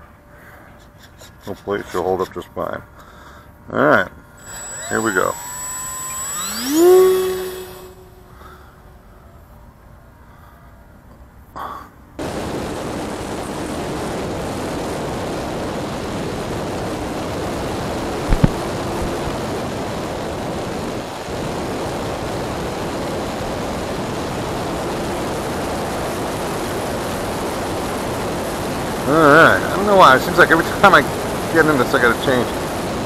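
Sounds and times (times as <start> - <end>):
electric motor and propeller: 4.4 - 8.6, 12.2 - 33.0
sharp clicks: 18.3 - 18.6.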